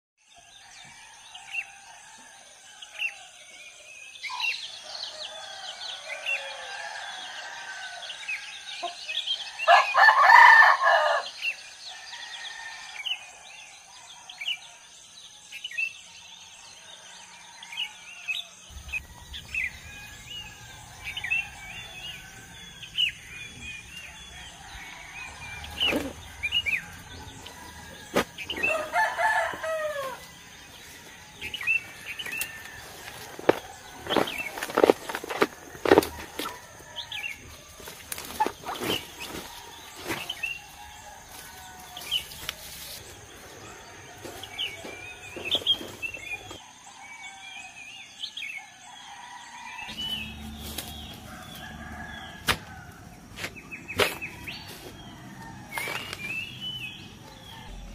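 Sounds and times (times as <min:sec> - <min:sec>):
rooster crowing: 0:04.7 - 0:13.3, 0:16.9 - 0:37.8, 0:48.8 - 0:57.9
small birds chirping: 0:18.2 - 0:46.6.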